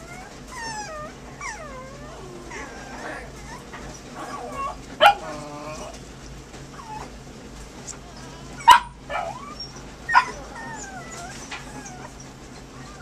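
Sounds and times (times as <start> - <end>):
puppies squeaky whines: 0.0 - 6.0, 6.7 - 7.1, 8.0 - 13.0
puppies sharp yips: 8.6 - 13.0.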